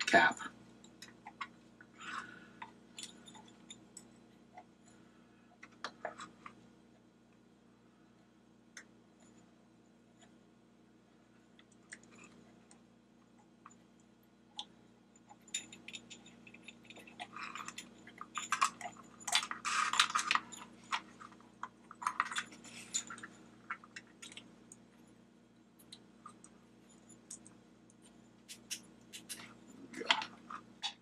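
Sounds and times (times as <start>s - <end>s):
rubbing and scraping of parts: 15.6s - 24.4s.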